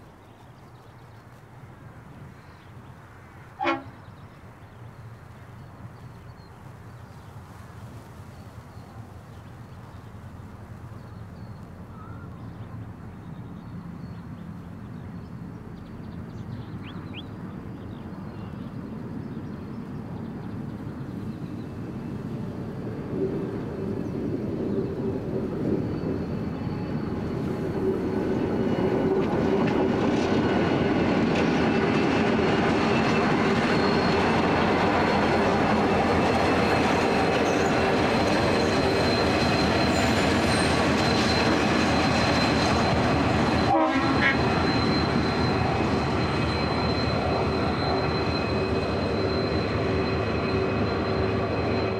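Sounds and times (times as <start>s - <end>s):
locomotive engine drone: 7.8s - 51.9s
train wheel noise: 18.2s - 51.9s
thin steady whine: 33.0s - 51.9s.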